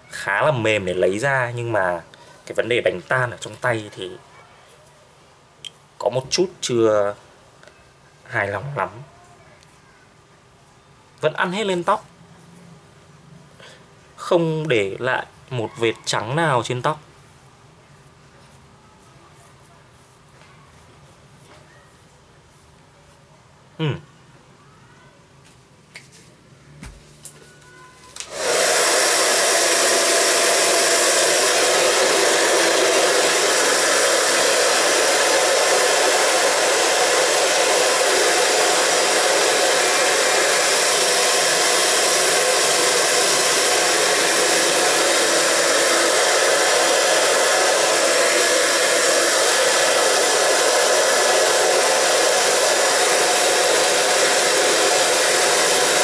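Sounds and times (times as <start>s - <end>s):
hair dryer blowing: 28.2s - 56.0s.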